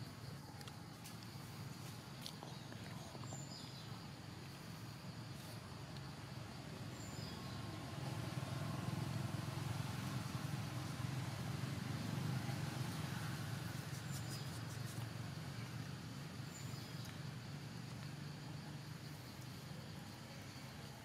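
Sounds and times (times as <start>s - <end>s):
passing vehicle engine rumble: 6.8s - 21.0s.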